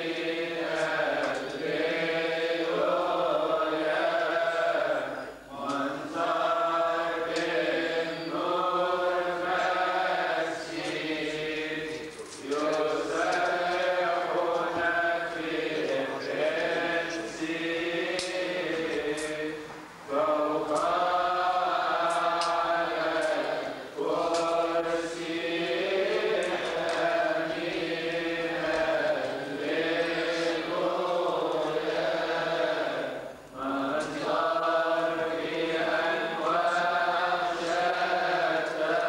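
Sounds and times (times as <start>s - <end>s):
group of voices chanting: 0.0s - 39.0s
faint high clicks: 11.9s - 13.9s.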